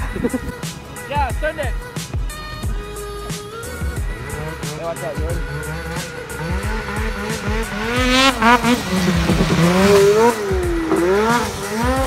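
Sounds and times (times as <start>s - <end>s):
snowmobile engine revving: 0.0s - 12.0s.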